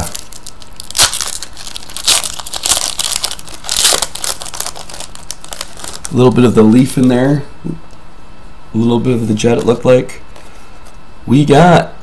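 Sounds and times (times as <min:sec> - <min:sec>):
foil wrapper crinkling: 0:00.0 - 0:06.3.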